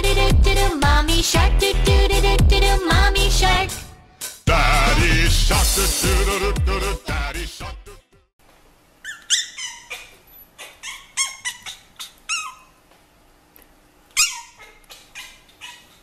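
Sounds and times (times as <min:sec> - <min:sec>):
puppies yapping: 0:09.0 - 0:12.8, 0:14.1 - 0:16.0.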